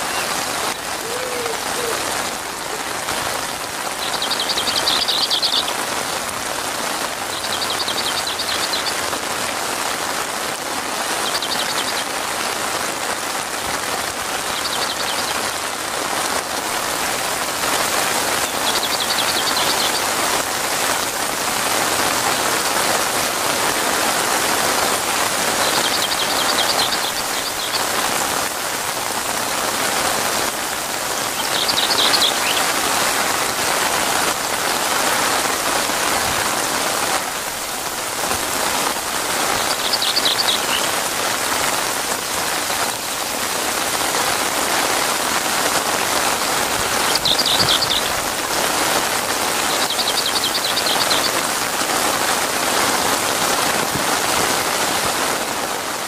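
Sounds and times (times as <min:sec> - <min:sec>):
heavy rain on leaves and water: 0:00.0 - 0:56.0
high chirping trills: 0:47.0 - 0:48.2, 0:49.7 - 0:51.4.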